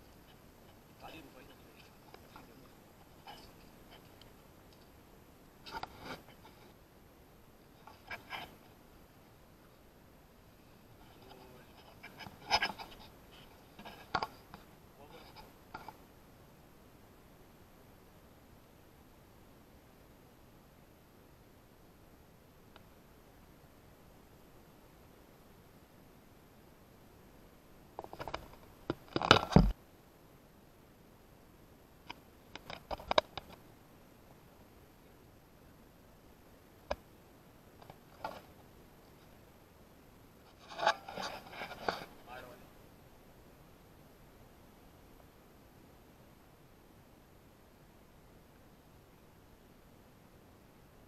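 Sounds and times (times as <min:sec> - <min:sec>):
faint steady hiss: 0:00.0 - 0:51.0
movement on rocky ground: 0:07.7 - 0:08.8, 0:10.8 - 0:14.7, 0:40.5 - 0:42.4.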